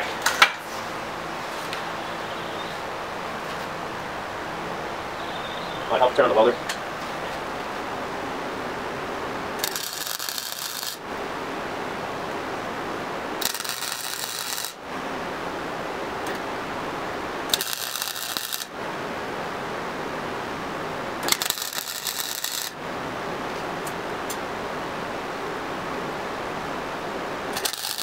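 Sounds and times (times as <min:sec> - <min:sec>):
steady welder hiss: 0:09.6 - 0:11.1, 0:13.4 - 0:14.9, 0:17.4 - 0:18.8, 0:21.2 - 0:22.8, 0:27.5 - 0:28.0
welding arc crackling: 0:09.6 - 0:11.1, 0:13.4 - 0:14.9, 0:17.4 - 0:18.8, 0:21.2 - 0:22.8, 0:27.5 - 0:28.0.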